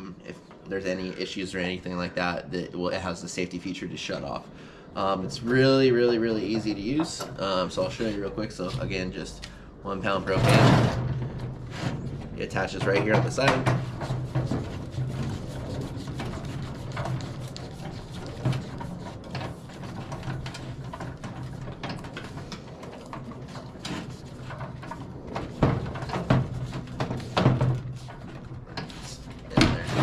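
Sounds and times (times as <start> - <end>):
steady low hum: 0.0 - 30.0
gas cylinder knocks and scrapes: 10.2 - 30.0.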